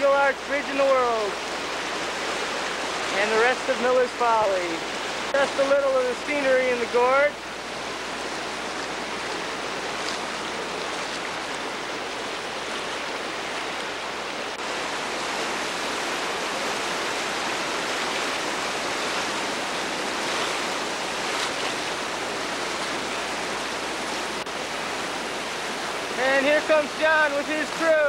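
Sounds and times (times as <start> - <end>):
river rapid rushing: 0.0 - 28.0.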